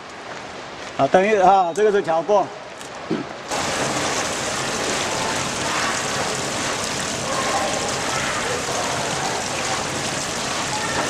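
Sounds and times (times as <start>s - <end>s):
steady rushing hiss: 3.5s - 10.9s.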